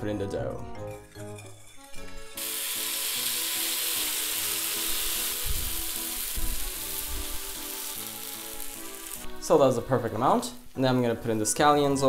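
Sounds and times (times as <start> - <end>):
batter sizzling in hot pan: 1.6 - 10.8.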